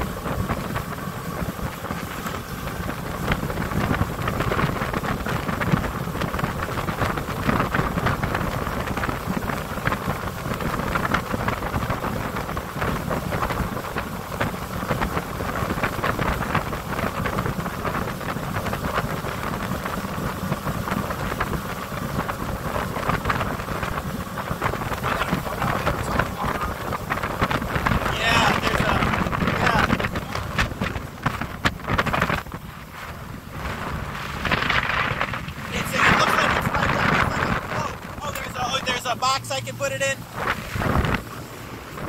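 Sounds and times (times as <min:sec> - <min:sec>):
motorboat running: 0:00.0 - 0:42.0
wind buffeting microphone: 0:00.0 - 0:42.0.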